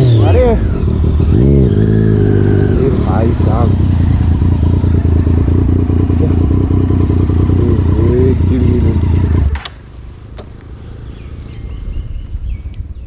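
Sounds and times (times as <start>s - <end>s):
motorcycle engine running: 0.0s - 13.0s
quiet roadside ambience: 0.0s - 13.0s
sharp clicks: 9.5s - 10.7s
wind noise on microphone: 11.6s - 13.0s.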